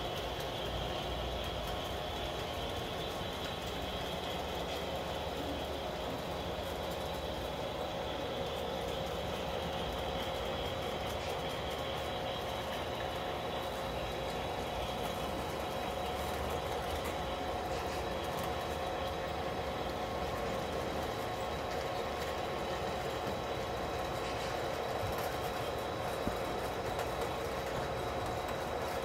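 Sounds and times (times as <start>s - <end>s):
model train whirring on track: 0.0s - 29.0s.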